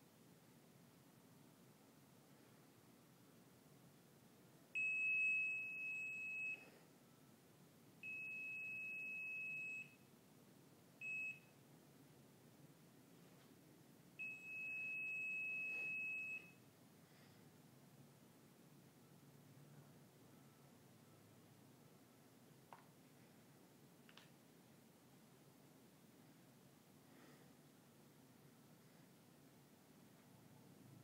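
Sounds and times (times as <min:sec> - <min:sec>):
stud finder beeping: 0:14.2 - 0:16.6.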